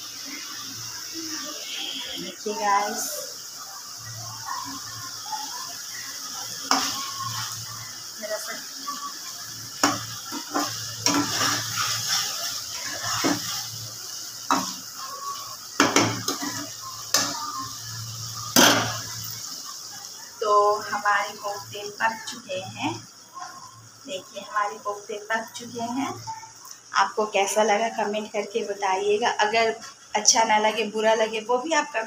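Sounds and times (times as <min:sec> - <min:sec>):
gravy sizzling: 0:00.0 - 0:32.0
metal ladle scraping a pan: 0:09.8 - 0:13.8, 0:15.8 - 0:17.4.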